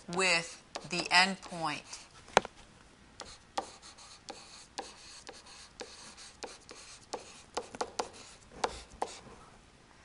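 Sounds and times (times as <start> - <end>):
stylus scratching on screen: 3.2 - 9.3.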